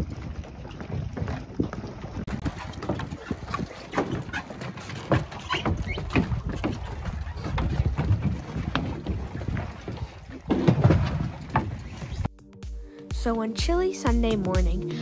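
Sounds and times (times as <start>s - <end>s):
wind rumble on microphone: 0.0s - 4.4s, 5.0s - 12.3s
footsteps on boat dock: 0.0s - 12.6s.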